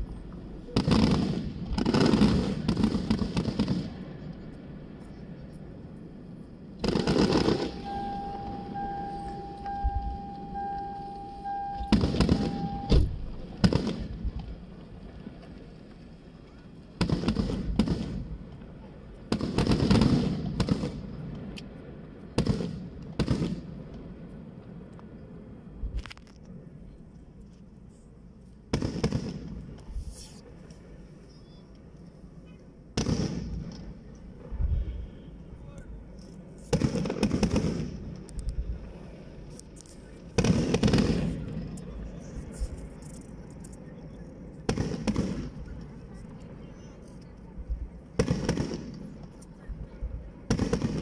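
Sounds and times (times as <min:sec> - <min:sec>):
fireworks crackling burst: 0:00.0 - 0:04.1, 0:06.8 - 0:10.6, 0:11.4 - 0:21.3, 0:36.4 - 0:43.4, 0:47.6 - 0:51.0
fireworks sharp bangs: 0:00.0 - 0:15.7, 0:16.5 - 0:25.9, 0:28.6 - 0:31.3, 0:32.4 - 0:43.5, 0:44.1 - 0:51.0
steady high tone: 0:07.0 - 0:13.1.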